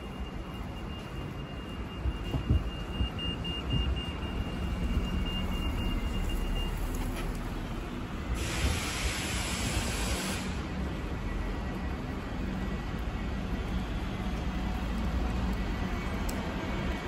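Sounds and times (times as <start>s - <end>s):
low rumble of vehicles: 0.0s - 17.0s
hiss: 8.3s - 10.7s.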